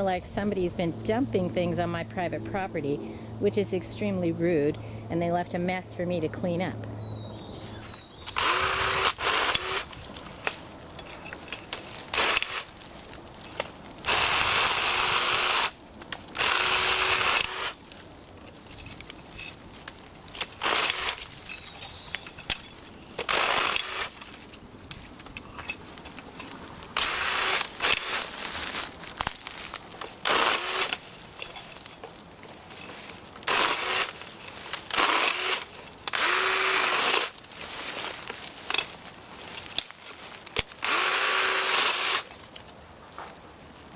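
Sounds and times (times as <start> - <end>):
electric chainsaw cutting branches: 8.2 - 10.6, 11.9 - 12.9, 13.5 - 17.9, 20.3 - 21.5, 23.2 - 24.3, 26.9 - 31.1, 33.4 - 37.4, 40.5 - 42.4.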